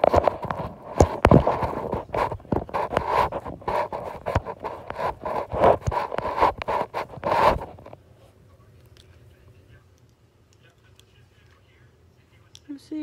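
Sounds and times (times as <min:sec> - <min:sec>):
microphone rubbing against clothing: 0:00.0 - 0:08.1.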